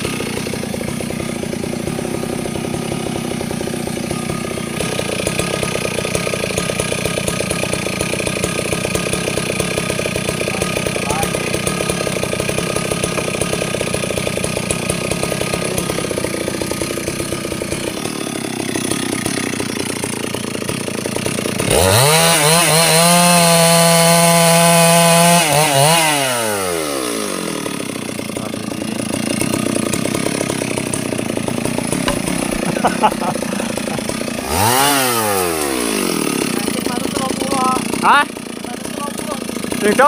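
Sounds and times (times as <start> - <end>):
chainsaw idling and revving: 0.0 - 40.0.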